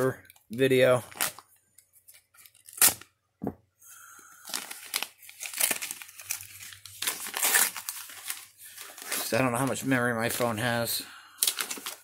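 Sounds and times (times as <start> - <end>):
plastic crinkling and tearing: 4.4 - 10.8, 11.4 - 12.0.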